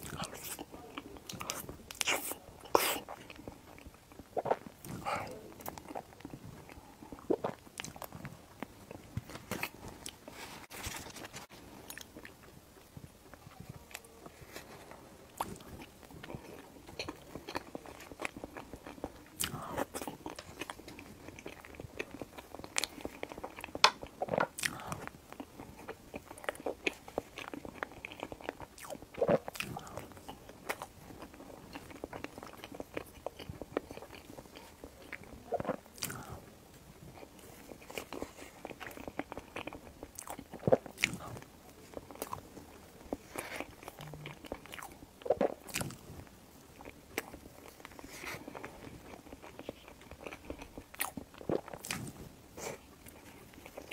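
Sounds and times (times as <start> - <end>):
wet chewing: 37.1 - 46.1, 46.8 - 53.9.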